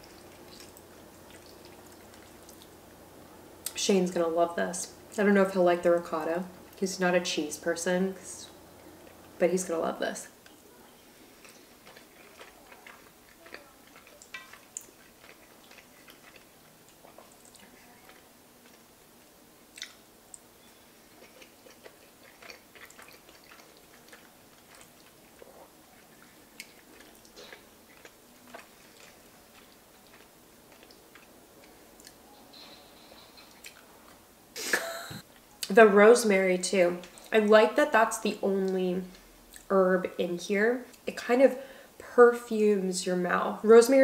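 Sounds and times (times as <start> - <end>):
person chewing food: 0.0 - 3.0, 10.4 - 34.2.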